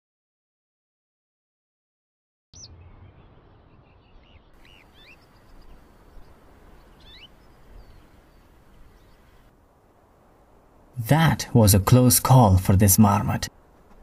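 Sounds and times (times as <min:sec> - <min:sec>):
high chirping calls: 0:02.6 - 0:09.5
low wind-like rumble: 0:02.6 - 0:14.0.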